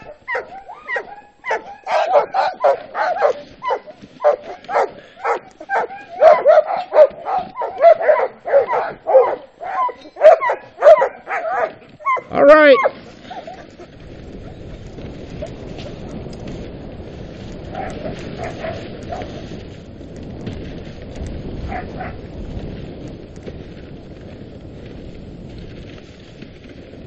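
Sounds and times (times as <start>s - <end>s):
dog yowling: 0.0s - 13.4s
dogs barking and yelping: 0.0s - 13.8s, 17.7s - 19.4s, 21.6s - 22.2s
sled runners hissing on snow: 0.0s - 27.0s.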